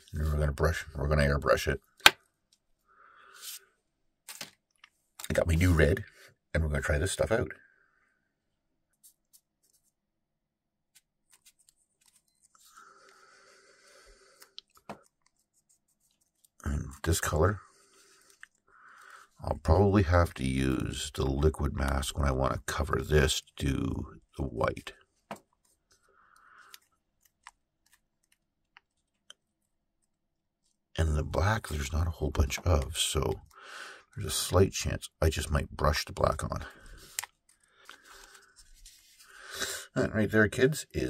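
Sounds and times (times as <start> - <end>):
tape crinkling and clicking: 4.3 - 5.4, 11.0 - 13.2, 14.3 - 16.6, 17.9 - 19.2, 25.3 - 30.8, 36.9 - 39.3
soft rasp of tape: 36.9 - 39.4.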